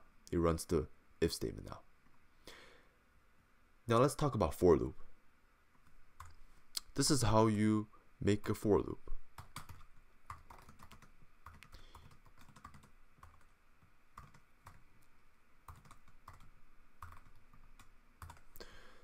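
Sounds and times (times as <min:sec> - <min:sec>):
computer keyboard typing: 0:06.2 - 0:06.4, 0:09.4 - 0:13.5, 0:14.2 - 0:14.9, 0:15.7 - 0:18.6.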